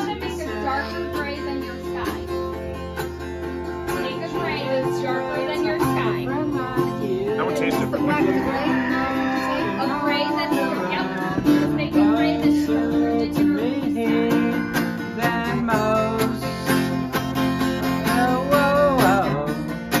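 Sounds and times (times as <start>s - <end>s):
acoustic guitar strumming chords: 0.0s - 20.0s
person singing: 3.9s - 17.1s, 17.8s - 19.7s.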